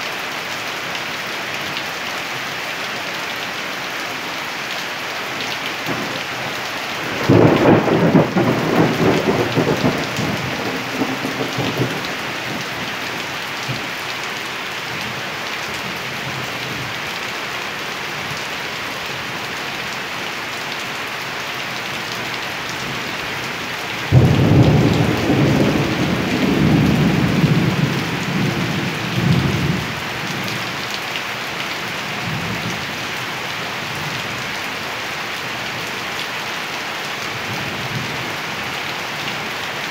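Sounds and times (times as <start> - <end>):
steady rain falling: 0.0 - 39.9
thunder rumbling: 7.0 - 12.9, 24.1 - 29.9.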